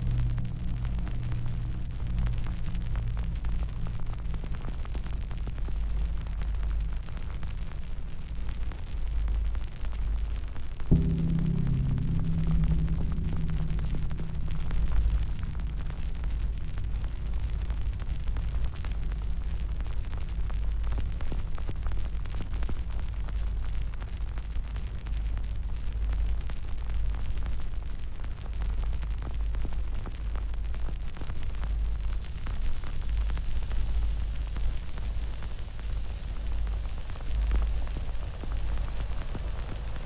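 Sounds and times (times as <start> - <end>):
fire rumbling and crackling: 0.0 - 40.0.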